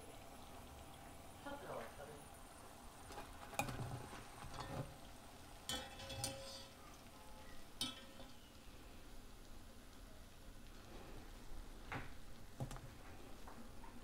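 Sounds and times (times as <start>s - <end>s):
oil sizzling: 0.0s - 14.0s
metal utensil clinking on cookware: 5.6s - 6.8s, 7.8s - 8.5s.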